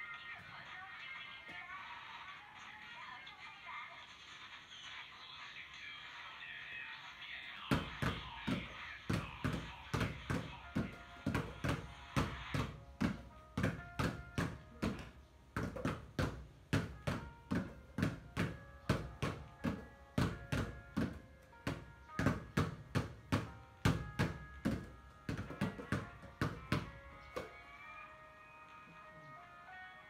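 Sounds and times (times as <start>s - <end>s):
faint music: 0.0s - 30.0s
basketballs bouncing on tiled floor: 7.6s - 27.6s.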